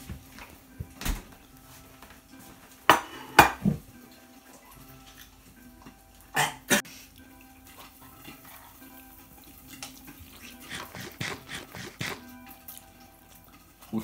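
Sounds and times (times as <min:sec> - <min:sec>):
faint background music: 0:00.0 - 0:14.0
spoon clinking on dishes: 0:02.9 - 0:03.7.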